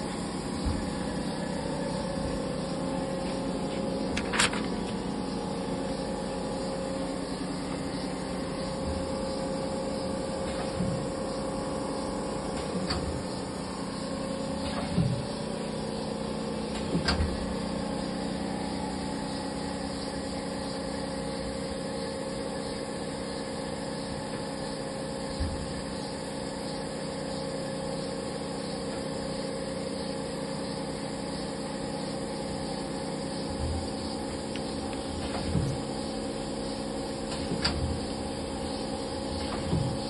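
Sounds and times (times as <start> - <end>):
machine hum with held tones: 0.0 - 40.0
dull thump: 39.4 - 40.0.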